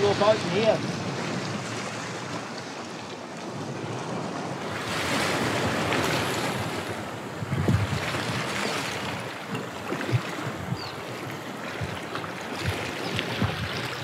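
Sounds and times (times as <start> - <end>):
sea washing on shore: 0.0 - 14.0
wind buffeting microphone: 3.5 - 14.0.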